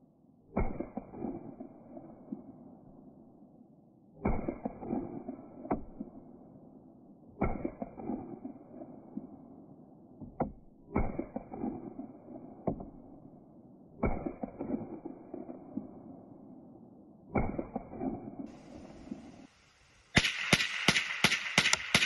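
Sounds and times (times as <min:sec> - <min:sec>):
rifle shots with echo: 0:00.5 - 0:02.5, 0:04.2 - 0:06.4, 0:07.4 - 0:09.8, 0:10.9 - 0:19.4, 0:20.2 - 0:22.0
sharp cracks: 0:20.1 - 0:22.0.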